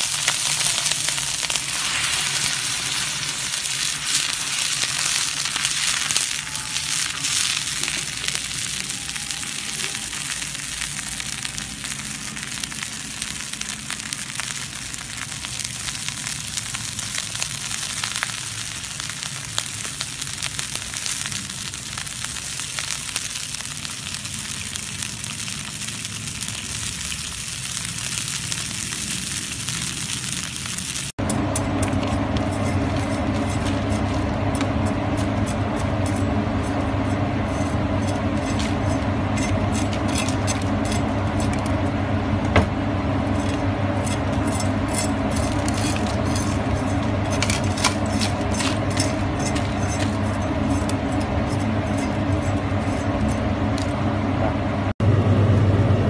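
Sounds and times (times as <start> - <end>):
sauce sizzling in a pan: 0.0 - 31.2
wood fire crackling: 0.0 - 55.0.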